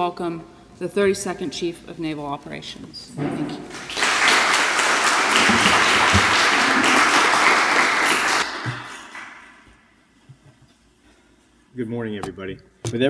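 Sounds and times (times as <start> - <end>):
audience applauding: 3.7 - 9.6.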